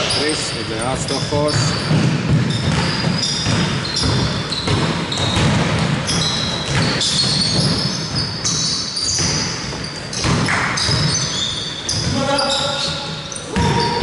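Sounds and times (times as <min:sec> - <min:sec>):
sneakers squeaking: 0:00.0 - 0:14.0
basketball bouncing on hardwood: 0:01.4 - 0:14.0.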